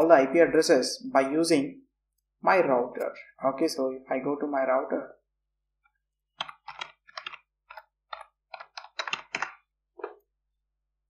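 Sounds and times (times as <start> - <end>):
keyboard typing: 6.3 - 10.2.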